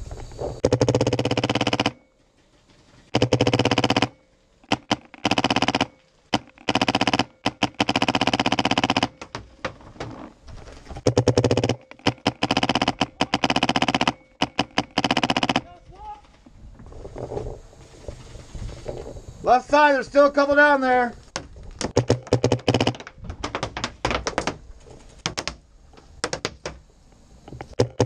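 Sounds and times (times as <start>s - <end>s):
paintball marker firing bursts: 0.6s - 2.0s, 3.2s - 9.2s, 11.1s - 15.7s, 21.8s - 23.0s.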